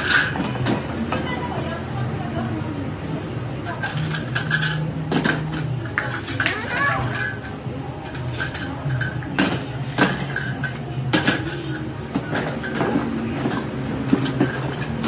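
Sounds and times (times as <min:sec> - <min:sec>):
plastic toy dishes clattering: 0:00.0 - 0:00.8, 0:03.7 - 0:15.0.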